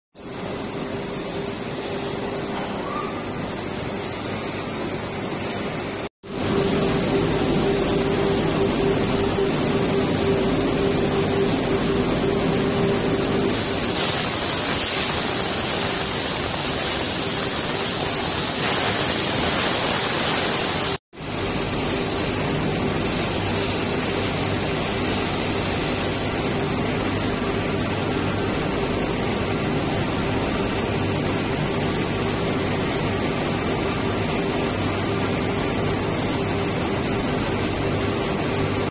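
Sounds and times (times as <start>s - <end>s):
machine hum: 0.2s - 38.9s
loud hissing rush of blasting equipment: 13.5s - 26.6s.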